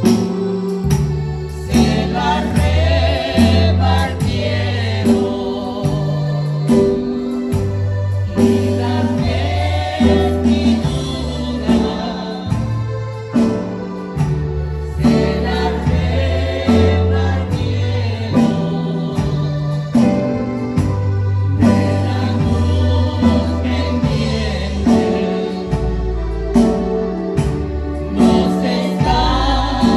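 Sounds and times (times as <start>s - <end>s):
choir singing a hymn: 0.0s - 29.9s
instrumental accompaniment with bass: 0.0s - 29.9s.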